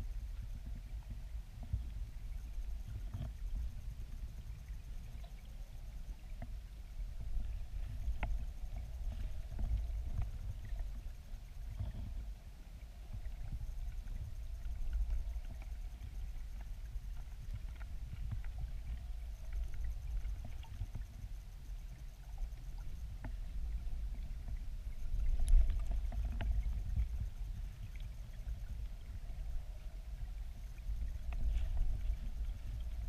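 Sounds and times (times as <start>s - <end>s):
muffled underwater river rumble: 0.0s - 33.0s
faint clicks: 25.2s - 29.9s.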